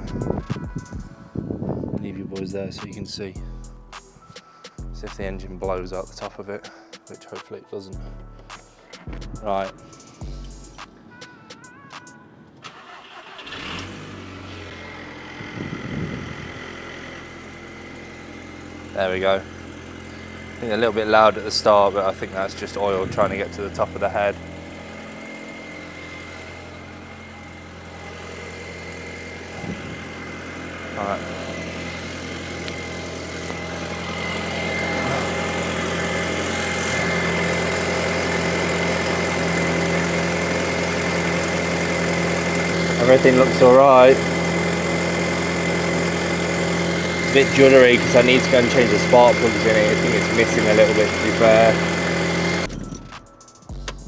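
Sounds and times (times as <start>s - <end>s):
car engine starting and idling: 4.8s - 6.6s, 8.0s - 54.0s
thin high whine: 18.9s - 39.8s.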